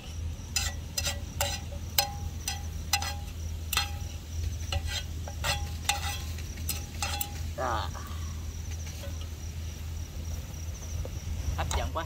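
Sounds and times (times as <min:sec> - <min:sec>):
crickets chirping: 0:00.0 - 0:12.0
low steady hum: 0:00.0 - 0:12.0
chopsticks tapping on metal wok: 0:01.0 - 0:04.1.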